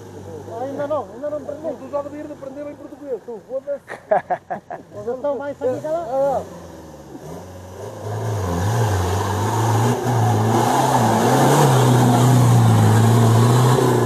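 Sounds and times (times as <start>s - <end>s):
off-road vehicle engine revving: 4.9s - 14.0s.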